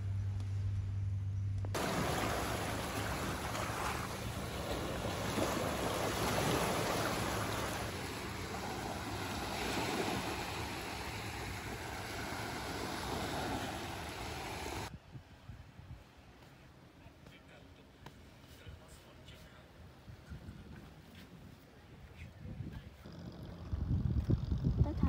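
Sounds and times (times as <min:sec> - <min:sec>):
low steady hum: 0:00.0 - 0:20.3
waves washing on sandy beach: 0:01.8 - 0:14.9.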